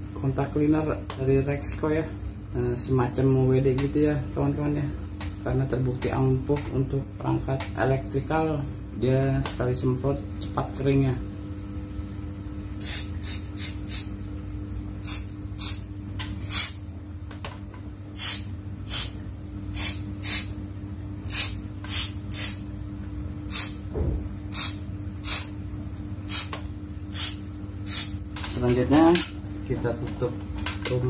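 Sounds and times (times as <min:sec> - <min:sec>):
steady low hum: 0:00.0 - 0:31.0
aerosol spray bursts: 0:12.8 - 0:14.1, 0:15.0 - 0:16.8, 0:18.2 - 0:20.6, 0:21.3 - 0:22.6, 0:23.5 - 0:23.8, 0:24.5 - 0:25.6, 0:26.3 - 0:28.2.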